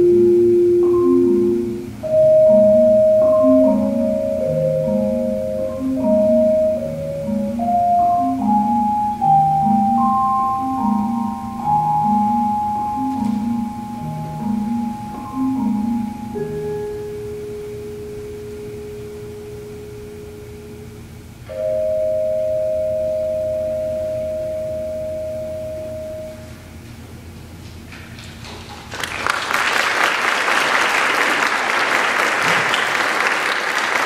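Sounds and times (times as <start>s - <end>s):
ringing vibraphone notes: 0.0s - 26.8s
marimba: 0.0s - 26.9s.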